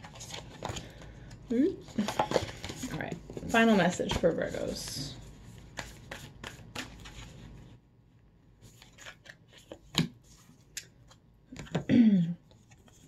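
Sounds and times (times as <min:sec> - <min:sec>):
cards being shuffled: 0:01.9 - 0:07.6, 0:08.6 - 0:11.8.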